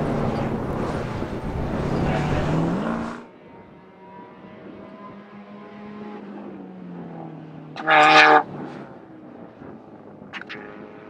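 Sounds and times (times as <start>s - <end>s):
distant car engine lapping: 0.0s - 3.3s, 7.8s - 8.8s
race car passing loudly: 0.0s - 11.0s.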